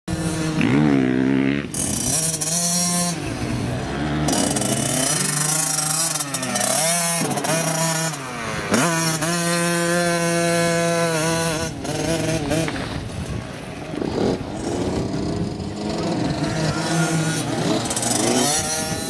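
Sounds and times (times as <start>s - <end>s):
motocross bike engine revving: 0.1s - 19.0s.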